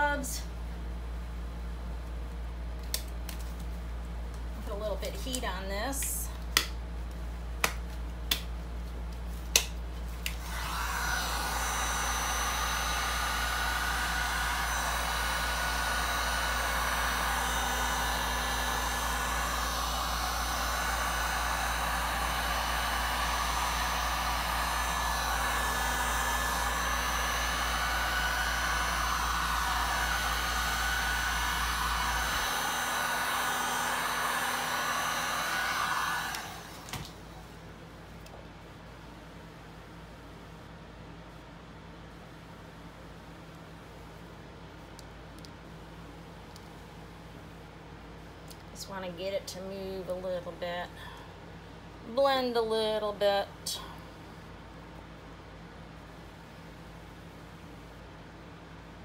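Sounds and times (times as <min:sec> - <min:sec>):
heat gun blowing air: 0:10.3 - 0:37.2.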